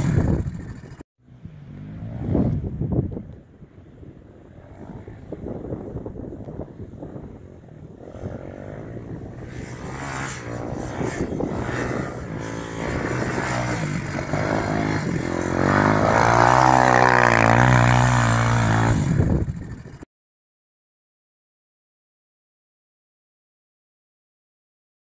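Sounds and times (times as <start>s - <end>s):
atv engine revving: 0.0s - 3.1s, 4.4s - 20.1s.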